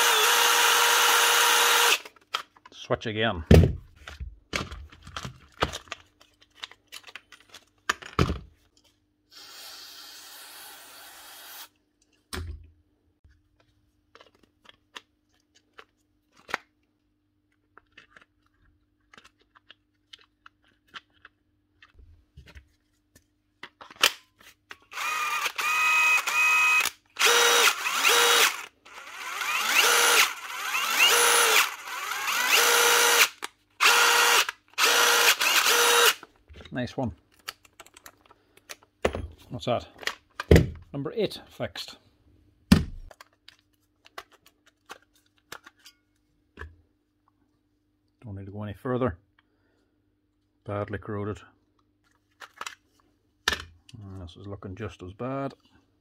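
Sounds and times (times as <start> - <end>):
impact driver motor whine: 0.0 - 2.0, 24.9 - 36.2.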